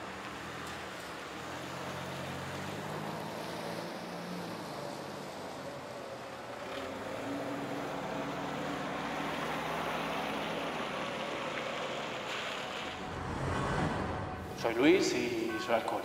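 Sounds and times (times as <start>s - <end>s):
distant city traffic hum: 0.0s - 16.0s
faint low drone: 12.9s - 15.9s.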